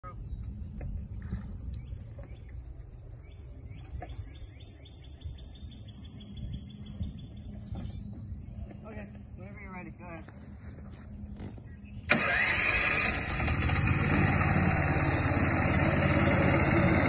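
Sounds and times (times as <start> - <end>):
birds chirping: 0.0 - 13.1.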